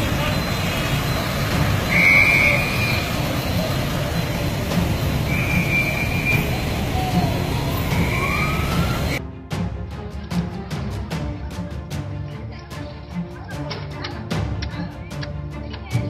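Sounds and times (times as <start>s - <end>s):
high steady tone: 0.0s - 9.2s
low rumble of vehicles and water: 0.0s - 9.2s.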